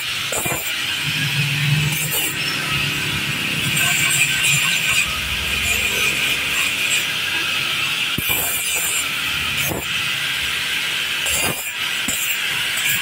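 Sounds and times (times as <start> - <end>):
angle grinder whining: 0.0 - 13.0
disc grinding metal pipe: 0.0 - 13.0.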